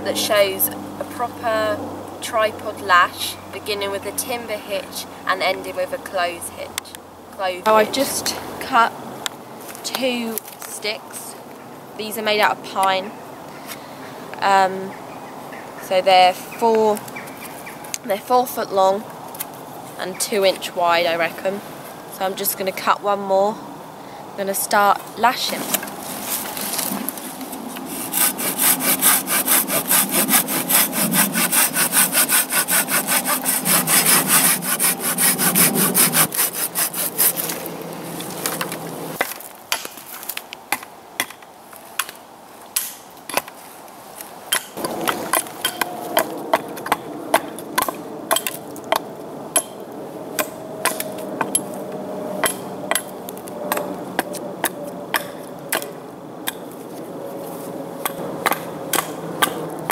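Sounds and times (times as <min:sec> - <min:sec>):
hand saw cutting wood: 0:27.7 - 0:37.7.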